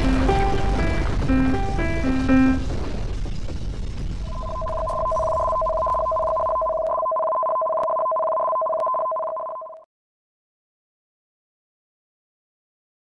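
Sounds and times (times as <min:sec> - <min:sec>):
low rumble: 0:00.0 - 0:07.0
two-tone electronic alert: 0:04.3 - 0:09.8.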